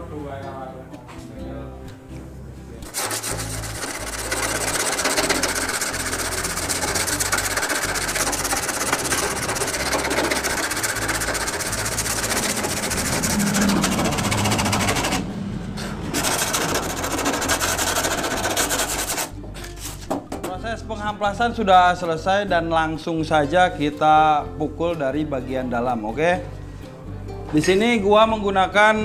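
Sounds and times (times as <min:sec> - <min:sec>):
sandpaper scratching metal panel: 0:02.8 - 0:15.3, 0:16.1 - 0:20.1.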